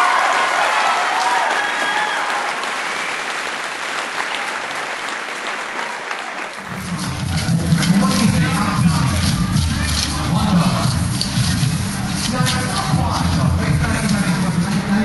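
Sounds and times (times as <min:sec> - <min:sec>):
voices cheering: 0:00.0 - 0:03.5
audience applauding: 0:00.0 - 0:08.4.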